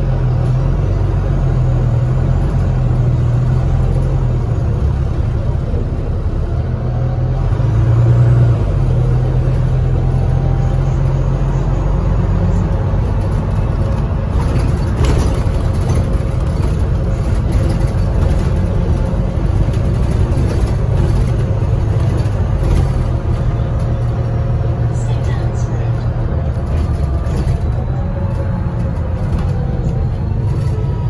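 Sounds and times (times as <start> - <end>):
bus diesel engine humming: 0.0 - 31.0
road rumble: 0.0 - 31.0
light body rattles: 12.4 - 31.0.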